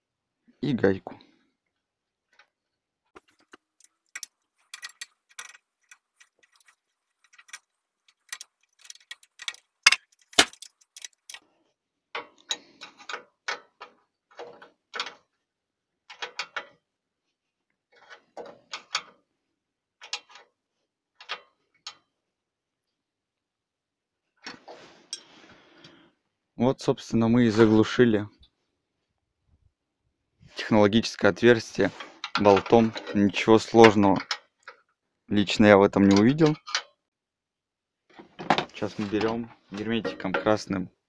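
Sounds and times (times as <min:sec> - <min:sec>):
metal clicks and rattles: 0:03.2 - 0:11.4, 0:12.1 - 0:15.3, 0:16.1 - 0:16.8, 0:18.0 - 0:19.2, 0:20.0 - 0:20.5, 0:21.2 - 0:22.1, 0:32.1 - 0:34.9, 0:36.0 - 0:37.0.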